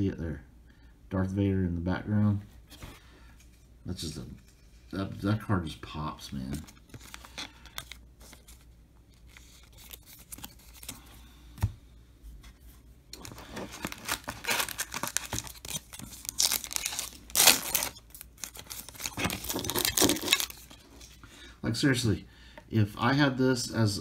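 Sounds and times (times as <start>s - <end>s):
foil wrapper ripping: 13.2s - 20.7s
foil wrapper crinkling: 13.2s - 20.8s.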